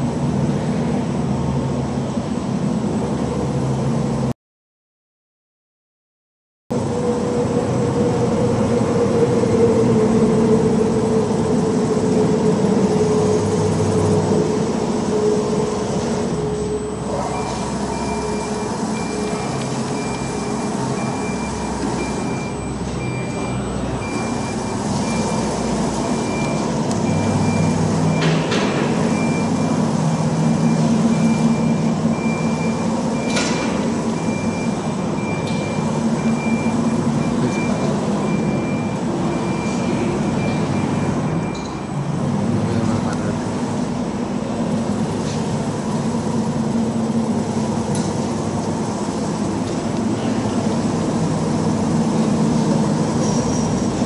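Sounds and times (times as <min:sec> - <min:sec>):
cnc router running: 0:06.8 - 0:54.0
high beep: 0:16.7 - 0:25.5, 0:30.6 - 0:41.9.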